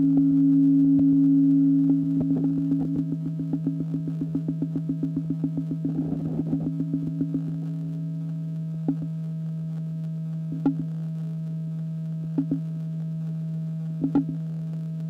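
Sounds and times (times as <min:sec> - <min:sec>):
faint higher tone: 0:00.0 - 0:09.2
low pure tone: 0:00.0 - 0:15.0.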